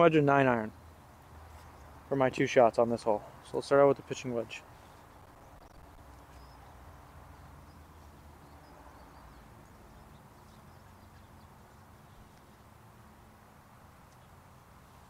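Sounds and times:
low rumble of wind: 0:00.0 - 0:15.0
faint bird chirps: 0:04.8 - 0:12.6.

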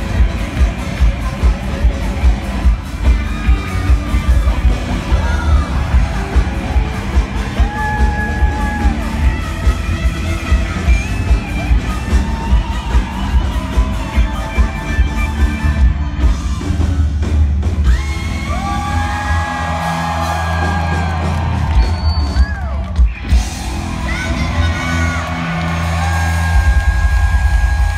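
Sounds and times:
people singing and whooping: 0:00.0 - 0:09.4, 0:10.6 - 0:17.1
live rock band playing: 0:00.0 - 0:27.9.

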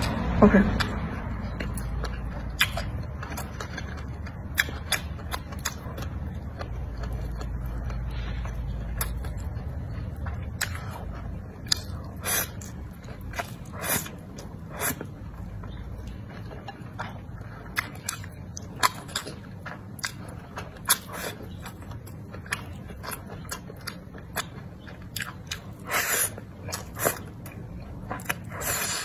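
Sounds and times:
steady low hum: 0:00.0 - 0:29.0
wet chewing: 0:00.0 - 0:29.0.

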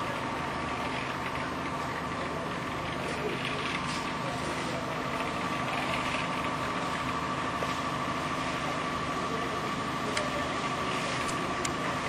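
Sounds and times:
machinery hum: 0:00.0 - 0:12.0.

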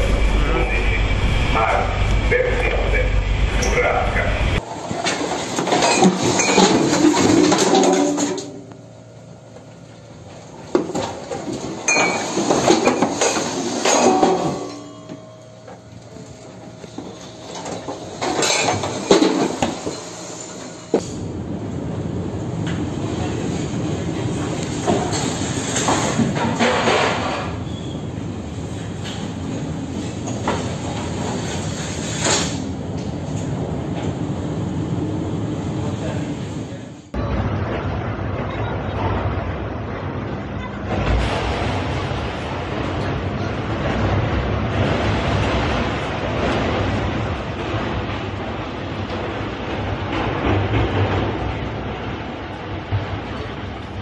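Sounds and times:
storm wind: 0:00.0 - 0:04.7, 0:21.0 - 0:26.7, 0:27.8 - 0:54.0
heavy seas: 0:00.0 - 0:54.0
objects sliding and clattering: 0:04.6 - 0:08.6, 0:10.7 - 0:15.8, 0:16.8 - 0:21.2, 0:24.7 - 0:27.7, 0:28.7 - 0:32.7.

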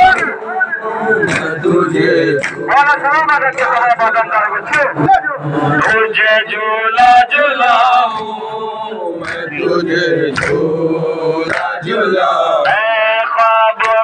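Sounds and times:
men chanting a lament: 0:00.0 - 0:14.0
hands slapping chests: 0:00.1 - 0:00.4, 0:01.2 - 0:05.1, 0:09.2 - 0:09.6, 0:10.3 - 0:10.7, 0:11.4 - 0:11.8, 0:12.6 - 0:12.9.

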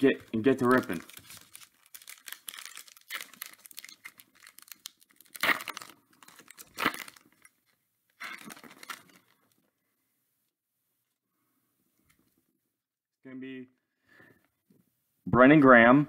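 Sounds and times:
foil wrapper tearing and crinkling: 0:00.2 - 0:07.5, 0:08.2 - 0:09.6.

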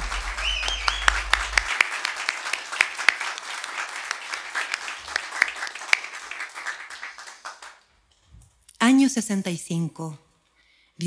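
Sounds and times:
small audience applauding: 0:00.0 - 0:08.0.

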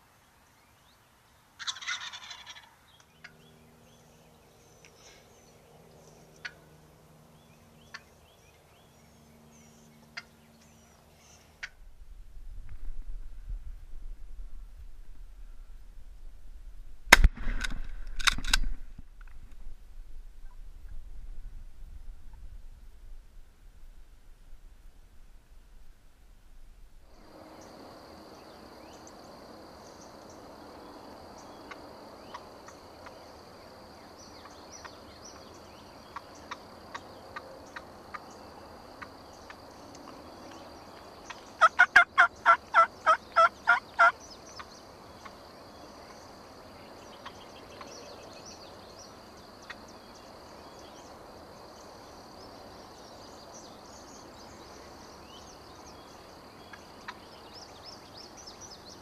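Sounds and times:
turkey calling: 0:01.6 - 0:02.8, 0:41.3 - 0:44.2
high insect drone: 0:27.1 - 0:59.0.

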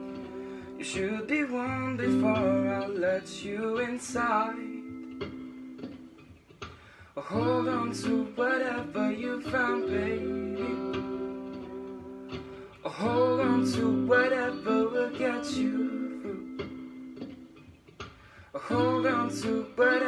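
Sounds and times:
man singing: 0:00.0 - 0:04.9, 0:07.2 - 0:12.0, 0:12.8 - 0:16.7, 0:18.6 - 0:20.0
electric guitar chords: 0:00.0 - 0:20.0.

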